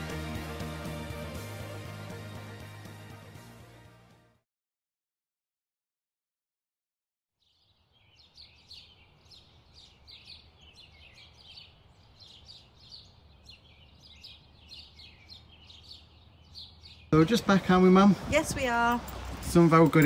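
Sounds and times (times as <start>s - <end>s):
songbirds chirping: 7.4s - 20.0s.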